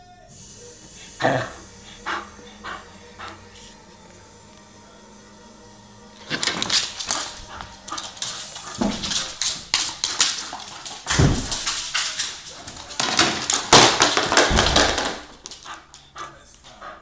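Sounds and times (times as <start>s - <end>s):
dog claws scrabbling on wood floor: 6.2s - 16.6s
dog paws thudding on floor: 6.2s - 17.0s.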